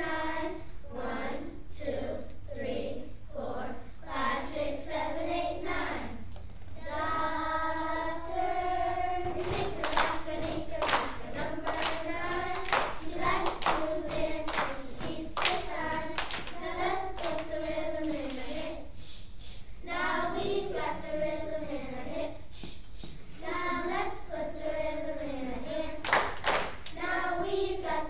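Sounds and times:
children's choir singing: 0.0s - 6.2s, 6.8s - 19.1s, 19.8s - 28.0s
hand claps: 9.3s - 16.6s, 17.2s - 18.5s, 26.0s - 27.0s.

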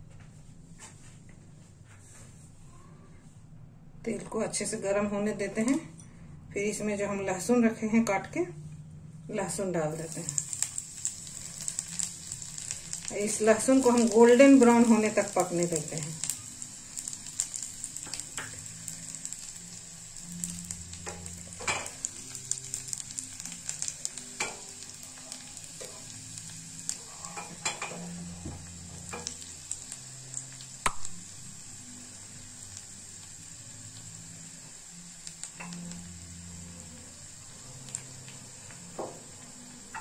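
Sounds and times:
garlic sizzling in oil: 9.4s - 40.0s
crackling pops: 30.4s - 31.3s.

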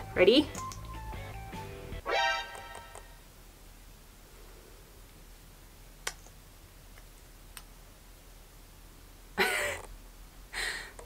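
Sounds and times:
loud breathy sound: 10.5s - 11.0s.

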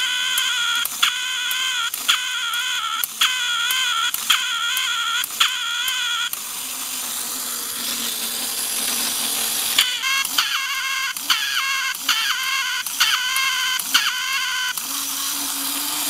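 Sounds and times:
toy duck cackling squeakily: 0.0s - 6.4s, 9.8s - 14.8s
toy mechanism click: 0.0s - 15.6s
clockwork motor whirring: 0.0s - 16.0s.

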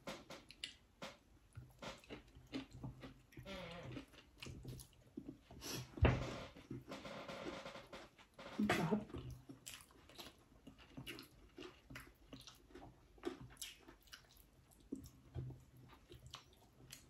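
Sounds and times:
chewing with mouth clicks: 1.5s - 5.9s, 9.1s - 17.0s.

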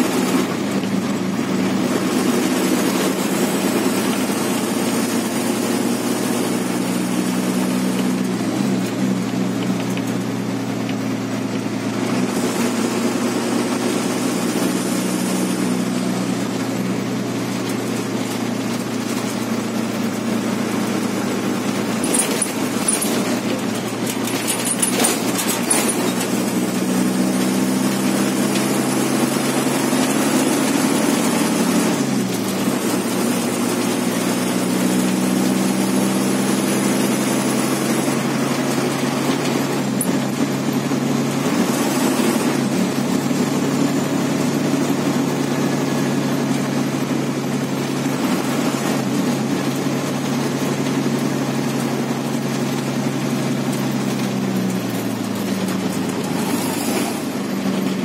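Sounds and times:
bus diesel engine drone: 0.0s - 58.0s.

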